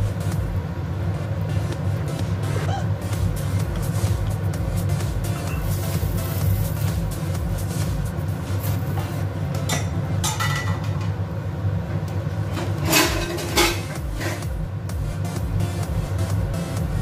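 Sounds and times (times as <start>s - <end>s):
steady low hum: 0.0s - 17.0s
kitchenware clinking: 9.6s - 11.2s, 12.6s - 14.4s.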